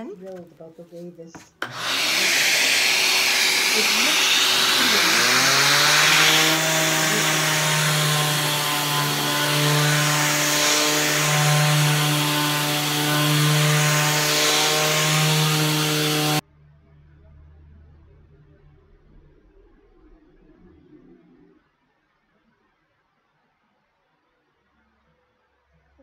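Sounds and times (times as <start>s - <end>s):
shop vacuum rushing hiss: 1.6s - 11.8s
orbital sander on wood: 1.6s - 16.4s.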